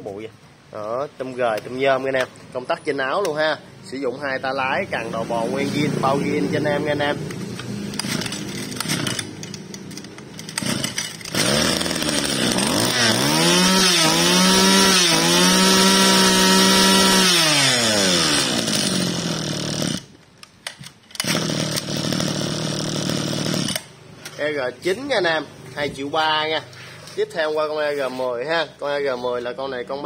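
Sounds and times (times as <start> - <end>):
brush-cutter engine revving and idling: 5.0 - 20.1, 21.2 - 23.9.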